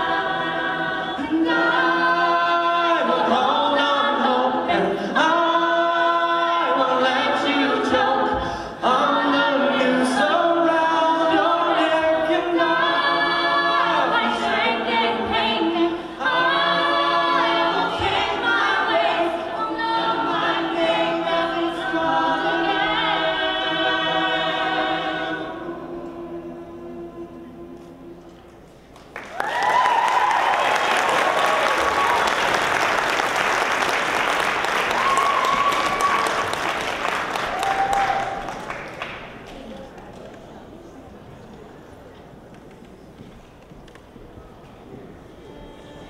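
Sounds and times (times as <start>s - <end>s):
a cappella group singing: 0.0s - 28.4s.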